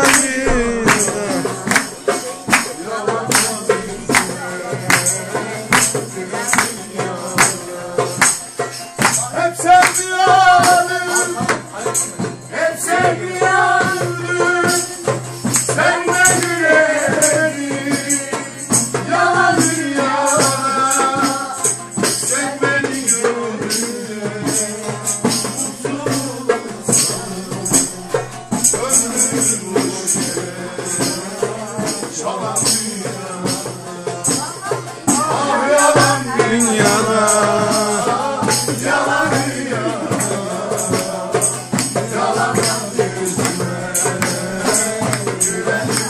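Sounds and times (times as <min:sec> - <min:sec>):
saz plucked: 0:00.0 - 0:09.9
hand drum: 0:00.0 - 0:46.0
tambourines jingling: 0:00.0 - 0:46.0
voices singing a melody: 0:00.0 - 0:46.0.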